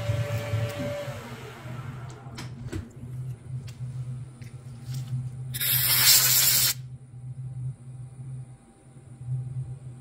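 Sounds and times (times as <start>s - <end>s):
compressed air blow gun hissing: 5.6s - 6.8s.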